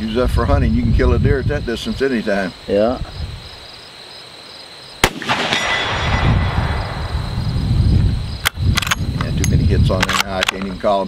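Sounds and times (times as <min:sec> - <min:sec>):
faint crickets: 0:00.0 - 0:11.0
rifle shot: 0:05.0 - 0:07.6
sharp clicks: 0:08.4 - 0:10.8.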